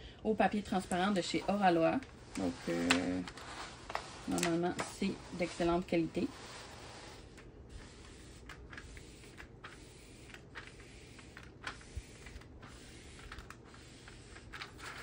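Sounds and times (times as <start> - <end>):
low steady hum: 0.0 - 15.0
plastic film crackling: 0.8 - 6.2.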